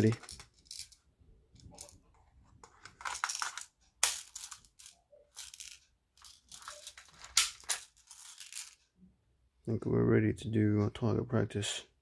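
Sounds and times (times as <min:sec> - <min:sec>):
plastic parts clicking and rattling: 0:00.0 - 0:08.8.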